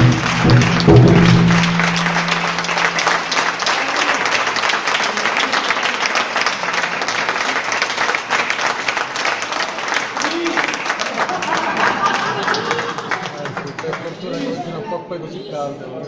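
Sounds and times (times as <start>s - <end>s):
percussion stroke ringing: 0.0s - 3.5s
audience applauding: 0.0s - 14.6s.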